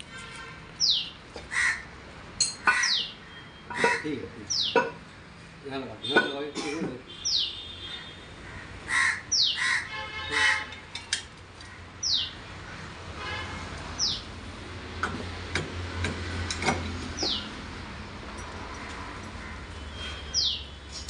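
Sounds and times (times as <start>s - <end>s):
crows cawing: 1.5s - 1.9s, 2.6s - 4.9s, 7.8s - 10.8s, 11.6s - 13.0s, 18.7s - 19.8s
metal clinks: 18.3s - 19.4s.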